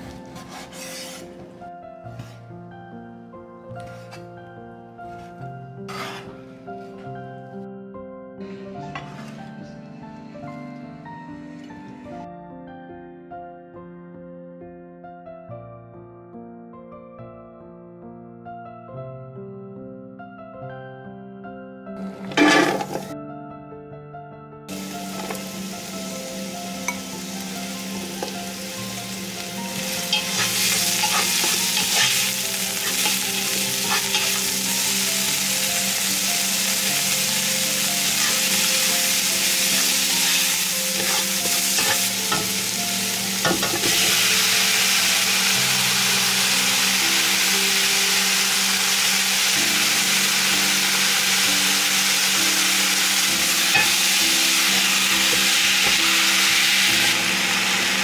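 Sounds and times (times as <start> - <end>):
food sizzling in hot oil: 24.7 - 58.0.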